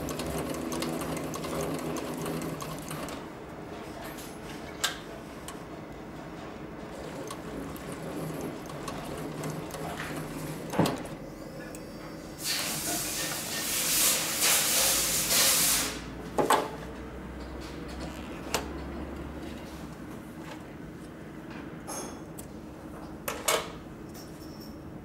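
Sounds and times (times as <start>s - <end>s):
sewing machine stitching fast: 0.0s - 3.2s, 6.9s - 11.1s.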